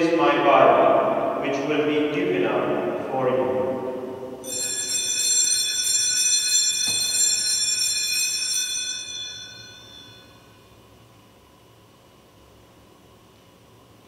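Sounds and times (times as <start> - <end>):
altar bells ringing: 4.4 - 10.8.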